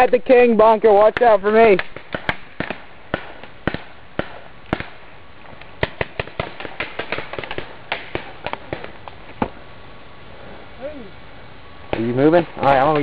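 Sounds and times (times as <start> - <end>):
paintball markers firing: 1.0 - 9.5, 11.9 - 13.0.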